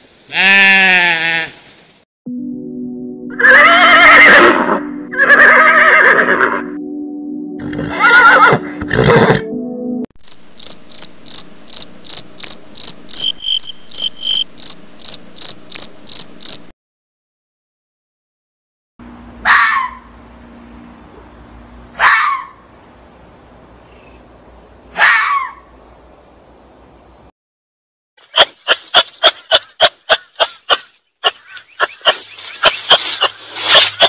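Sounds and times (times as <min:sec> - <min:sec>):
horse neighing: 0:03.4 - 0:06.7, 0:07.6 - 0:09.4
insect chirping: 0:10.2 - 0:16.7
steady low hum: 0:10.3 - 0:16.7.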